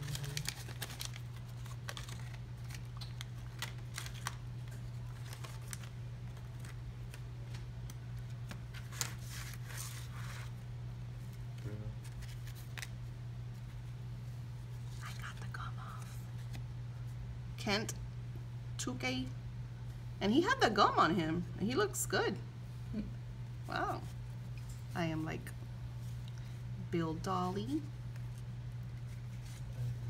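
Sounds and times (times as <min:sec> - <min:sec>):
baseball cards clicking and rustling: 0:00.0 - 0:10.5, 0:11.6 - 0:13.0
steady low hum: 0:00.0 - 0:30.0.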